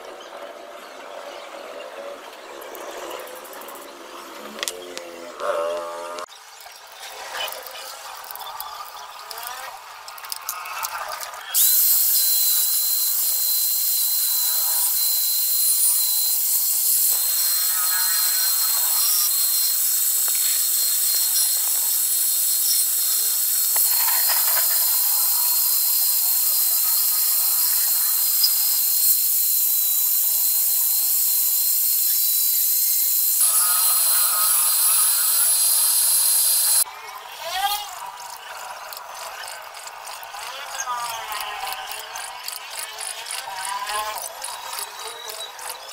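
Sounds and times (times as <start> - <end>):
electric motor whining: 9.2 - 36.8.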